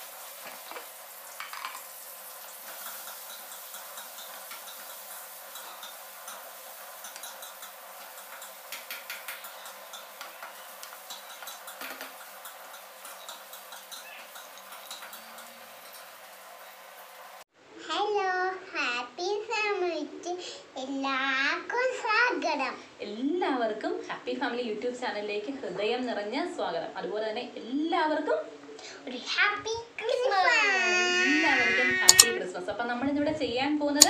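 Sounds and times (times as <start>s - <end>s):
steady hiss: 0.0s - 17.5s
spoon scraping a metal pot: 2.6s - 16.8s, 31.6s - 32.4s.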